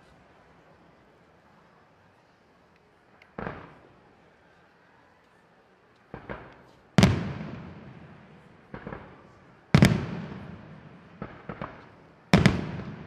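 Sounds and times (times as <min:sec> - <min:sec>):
small firework pops: 0:02.7 - 0:04.0, 0:05.2 - 0:07.9, 0:08.6 - 0:13.0
firework shells booming: 0:06.1 - 0:13.0.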